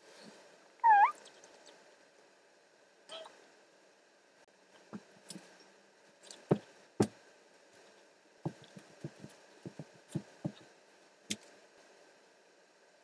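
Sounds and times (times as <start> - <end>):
thumps and knocks: 6.3 - 7.2, 8.5 - 10.6.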